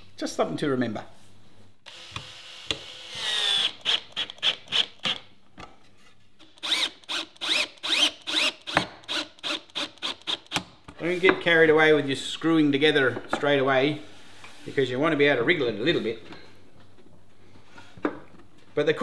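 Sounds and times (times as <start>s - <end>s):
cordless drill driving screws: 1.9s - 5.2s, 6.4s - 10.7s.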